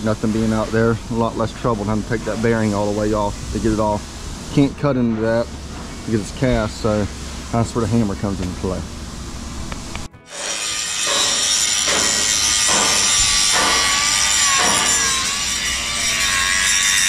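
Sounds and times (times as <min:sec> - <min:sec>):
angle grinder cutting steel: 0:10.2 - 0:17.0.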